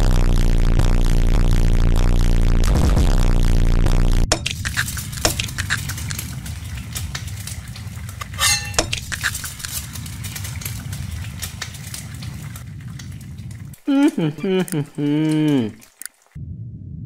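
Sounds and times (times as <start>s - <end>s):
eggs sizzling in a frying pan: 4.4s - 16.4s
metallic clinks against pan: 8.4s - 9.0s.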